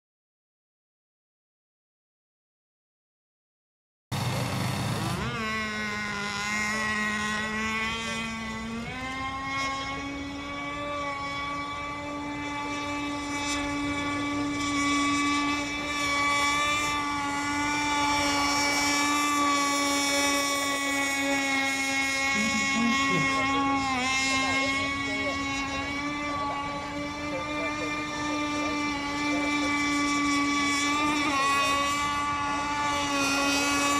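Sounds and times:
model boat motor whining: 0:04.2 - 0:33.9.

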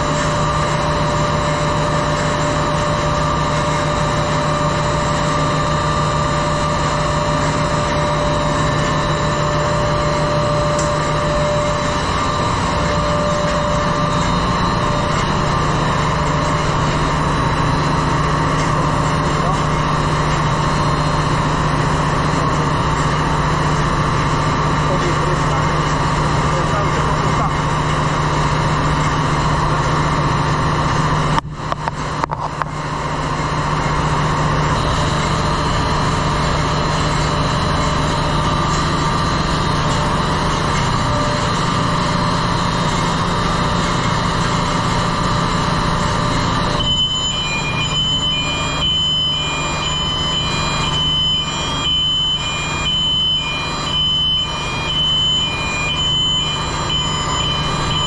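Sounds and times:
engine room machinery drone: 0:00.0 - 0:58.0
high electronic beeping: 0:46.3 - 0:58.0.

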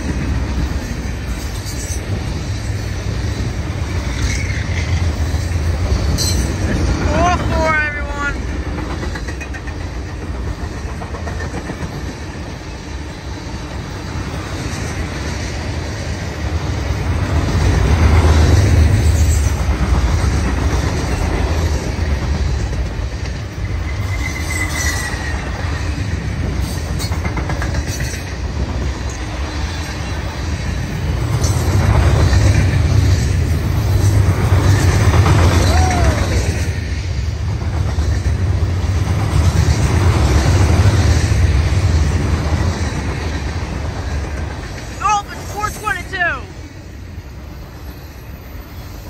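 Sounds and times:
train wheels rumbling and clacking: 0:00.0 - 0:49.0
train wheel squeal: 0:00.6 - 0:06.8, 0:18.4 - 0:19.6, 0:23.4 - 0:28.4, 0:47.2 - 0:49.0.

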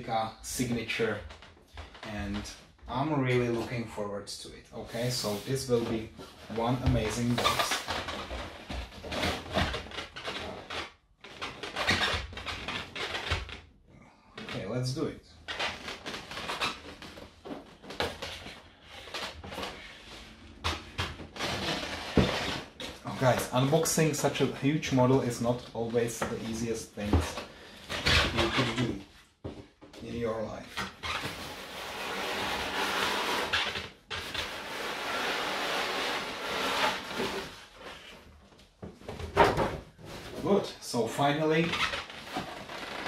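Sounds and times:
cardboard rustling and scraping: 0:04.8 - 0:13.3, 0:15.5 - 0:40.8
cardboard scraping on cardboard: 0:31.0 - 0:38.2.

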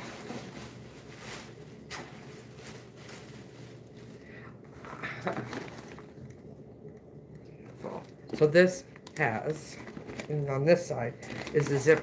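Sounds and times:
handbag rustling: 0:00.0 - 0:06.2, 0:09.3 - 0:12.0.

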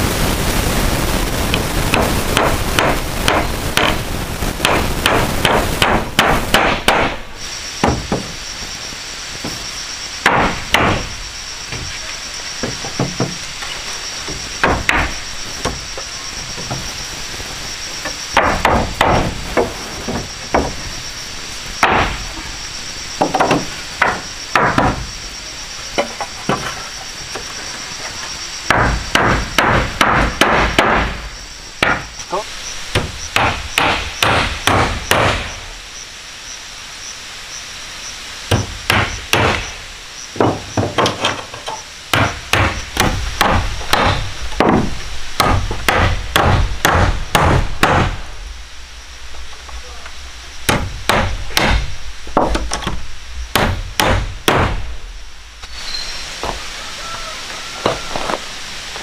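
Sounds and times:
high-pitched buzz: 0:00.0 - 0:59.0
hammer striking wood: 0:01.9 - 0:04.0, 0:04.6 - 0:07.2, 0:07.8 - 0:08.3, 0:10.2 - 0:11.1, 0:12.6 - 0:13.4, 0:14.3 - 0:15.8, 0:18.4 - 0:20.8, 0:21.8 - 0:22.2, 0:23.2 - 0:25.0, 0:28.7 - 0:31.2, 0:31.8 - 0:32.1, 0:32.9 - 0:35.5, 0:38.5 - 0:39.7, 0:40.4 - 0:48.2, 0:50.7 - 0:54.9.

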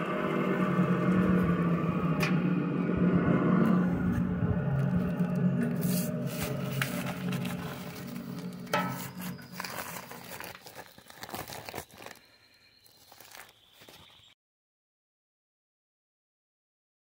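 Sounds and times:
plastic sack rustling: 0:05.0 - 0:14.3.

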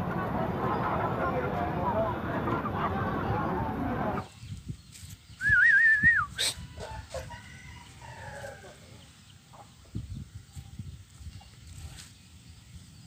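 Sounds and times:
chickens calling: 0:00.0 - 0:12.4
wavering whistle: 0:05.4 - 0:06.5.

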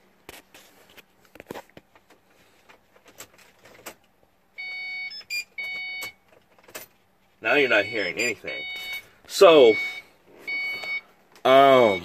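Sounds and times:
faint clicks and handling noise: 0:00.0 - 0:04.4, 0:05.1 - 0:07.4
electronic beeping: 0:07.6 - 0:11.1, 0:11.7 - 0:12.0.

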